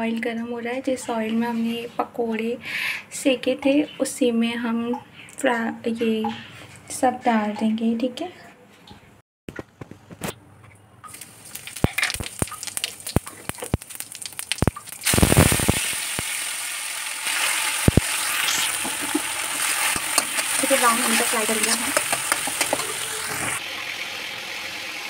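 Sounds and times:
food sizzling in hot oil: 11.1s - 25.0s
utensils tapping and clicking: 17.9s - 23.0s.

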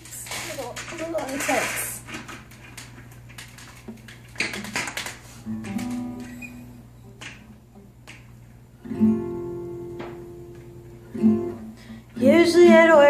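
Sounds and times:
acoustic guitar chord strummed: 5.4s - 8.0s, 8.8s - 13.0s.

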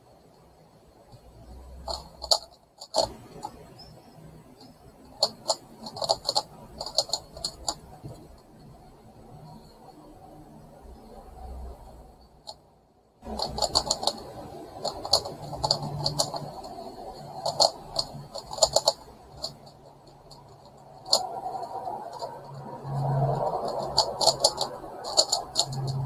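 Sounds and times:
plastic puzzle clicking: 1.8s - 3.7s, 4.6s - 8.3s, 13.2s - 26.0s.

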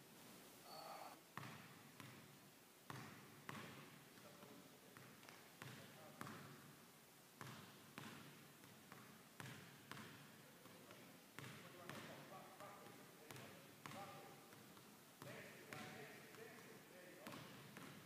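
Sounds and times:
shoe squeak: 0.7s - 1.2s
basketball bouncing on wooden floor: 1.4s - 2.3s, 2.9s - 3.9s, 5.0s - 6.6s, 7.4s - 12.2s, 17.2s - 18.0s.

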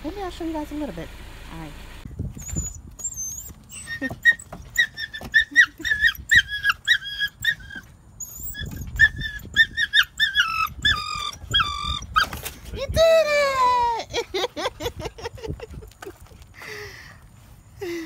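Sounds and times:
puppy whimpering: 2.4s - 12.4s.

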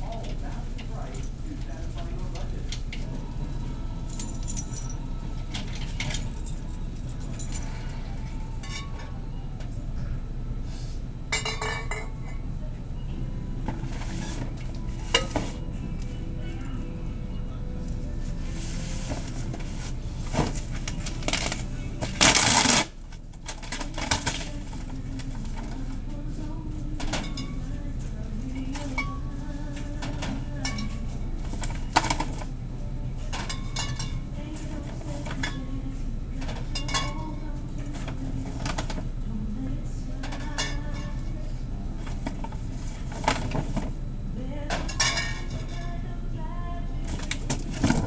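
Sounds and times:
low background hum: 0.0s - 48.0s
glass bottles clinking: 36.7s - 37.2s.

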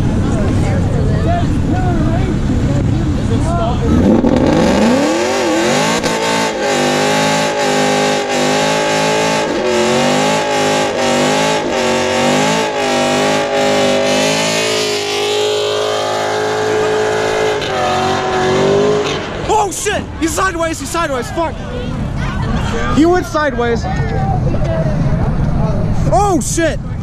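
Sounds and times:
car engine at high revs: 0.0s - 19.5s.

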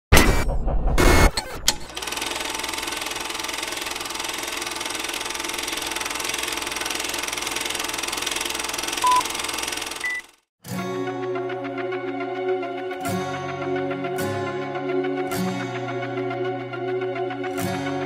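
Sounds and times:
film projector clatter: 1.8s - 10.4s.

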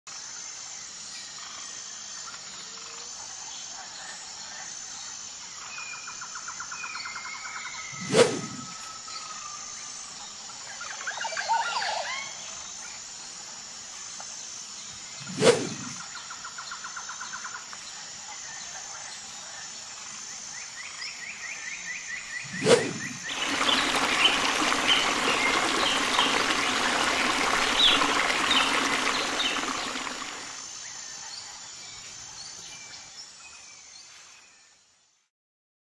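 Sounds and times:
insects buzzing: 19.8s - 31.1s
birds calling: 22.4s - 30.6s
running water: 22.5s - 30.6s.

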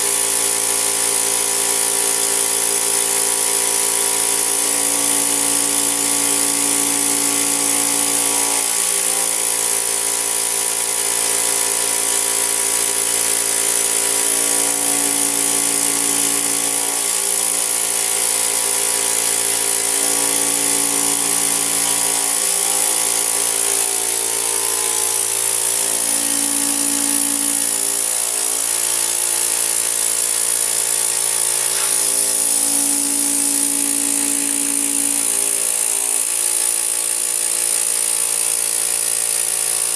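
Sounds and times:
vacuum cleaner motor whining: 0.0s - 39.9s.

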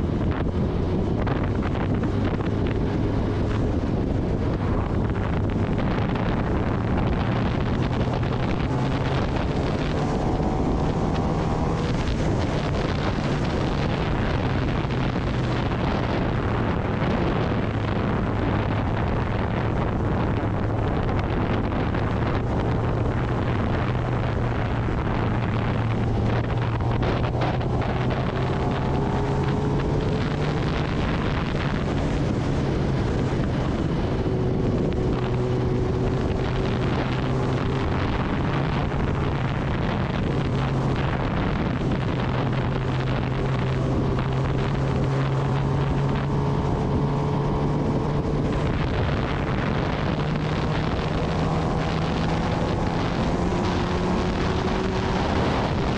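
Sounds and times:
motorcycle engine running: 0.0s - 55.9s
wind noise on microphone: 0.0s - 55.9s.

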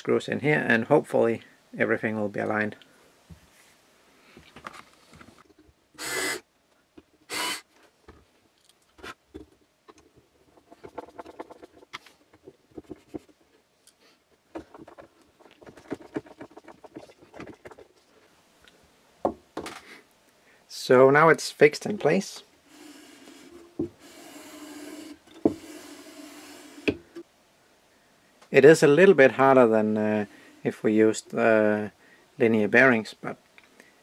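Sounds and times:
short hissing bursts: 6.0s - 6.4s, 7.3s - 7.7s
screw creaking and clicking: 8.6s - 13.3s.

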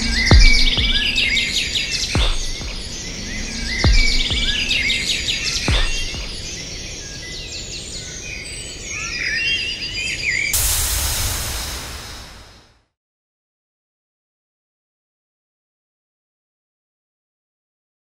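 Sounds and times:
steady rush of noise: 0.0s - 8.0s, 10.5s - 12.9s
birds chirping: 0.0s - 10.6s.

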